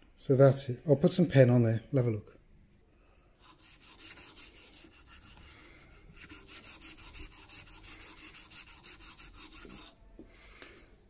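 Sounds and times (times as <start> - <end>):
chisel scraping on sharpening plate: 6.2 - 9.9.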